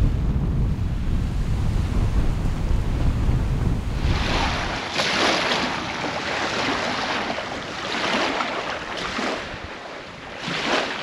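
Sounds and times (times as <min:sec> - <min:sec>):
wind buffeting microphone: 0:00.0 - 0:11.0
waves washing onto sandy shore: 0:03.8 - 0:11.0.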